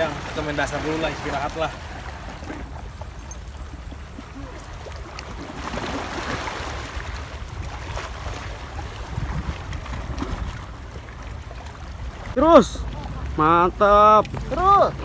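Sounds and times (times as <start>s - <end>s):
small waves washing against rocks: 0.0s - 12.4s
wind buffeting microphone: 0.0s - 15.0s.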